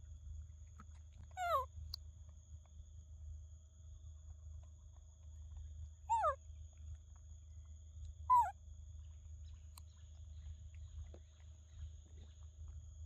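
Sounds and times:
young monkey cooing: 0:01.4 - 0:01.6, 0:06.1 - 0:06.4, 0:08.3 - 0:08.5.

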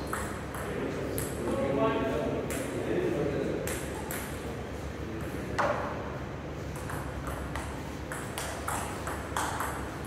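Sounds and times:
table tennis ball clicking: 0:06.8 - 0:09.9.

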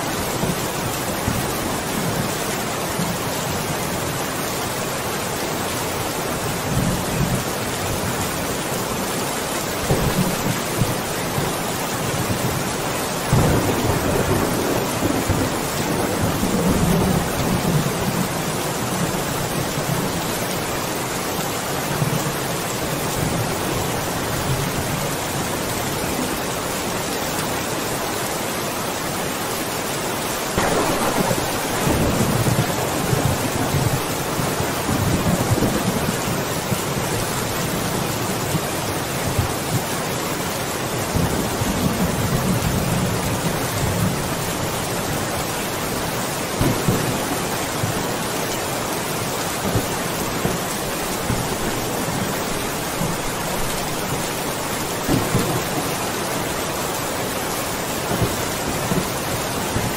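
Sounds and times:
heavy rain falling: 0:00.0 - 0:59.9
distant thunder rumbling: 0:13.3 - 0:18.4, 0:30.6 - 0:36.9.

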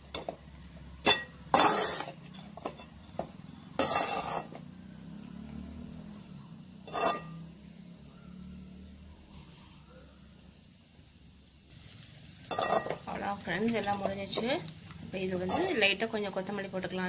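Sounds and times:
metal spatula scraping a pan: 0:01.0 - 0:04.7, 0:06.8 - 0:07.5, 0:11.8 - 0:14.5, 0:15.4 - 0:16.0.

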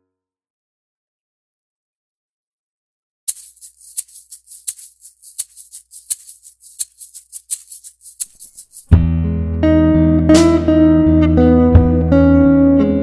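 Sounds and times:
shaker percussion: 0:03.3 - 0:09.0.

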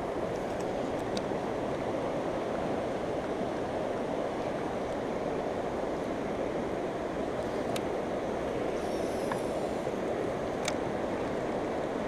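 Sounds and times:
fast river rushing: 0:00.0 - 0:12.0.

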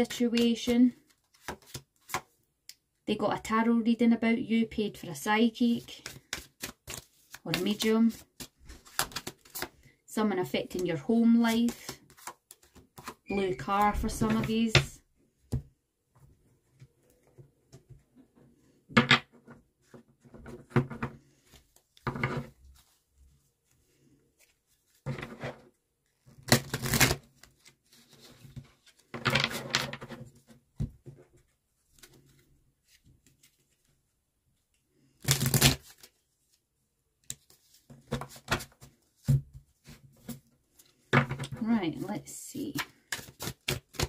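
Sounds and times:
cards shuffling and riffling: 0:00.4 - 0:02.3, 0:05.8 - 0:09.8, 0:35.1 - 0:36.6, 0:42.8 - 0:44.0.

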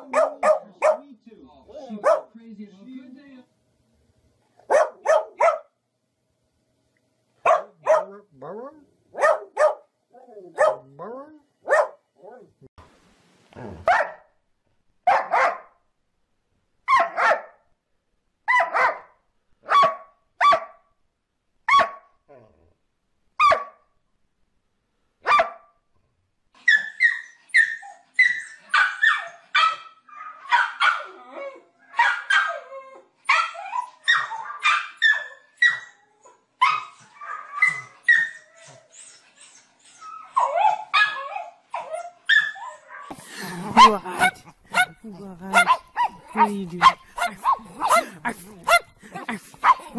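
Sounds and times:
dog barking: 0:00.0 - 0:01.0, 0:01.8 - 0:02.4, 0:04.6 - 0:05.7, 0:07.4 - 0:08.2, 0:09.1 - 0:09.9, 0:10.5 - 0:11.0, 0:11.6 - 0:12.0, 0:13.8 - 0:14.3, 0:15.1 - 0:15.8, 0:16.9 - 0:17.6, 0:18.5 - 0:20.8, 0:21.7 - 0:22.1, 0:23.4 - 0:23.8, 0:25.2 - 0:25.7, 0:28.7 - 0:31.2, 0:31.9 - 0:32.6, 0:33.3 - 0:35.8, 0:43.7 - 0:49.9
small dog yipping excitedly: 0:36.6 - 0:38.8.

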